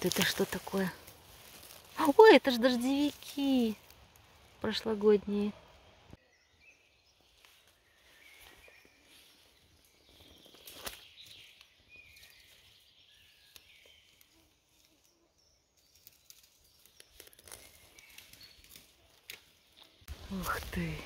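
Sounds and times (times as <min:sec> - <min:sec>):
faint bird chirps: 0:05.4 - 0:21.0.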